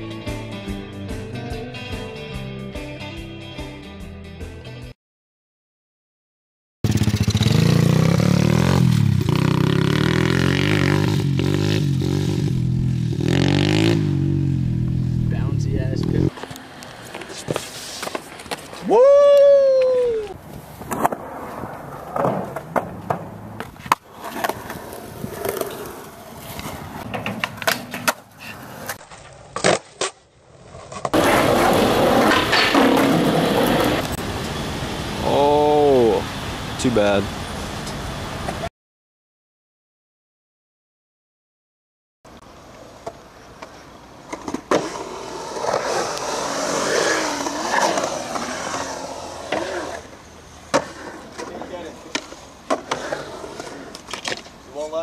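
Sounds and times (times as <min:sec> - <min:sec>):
skateboard rolling on concrete: 0:15.3 - 0:35.3, 0:36.0 - 0:38.7, 0:42.3 - 0:55.0
skateboard clacks: 0:50.7 - 0:54.6.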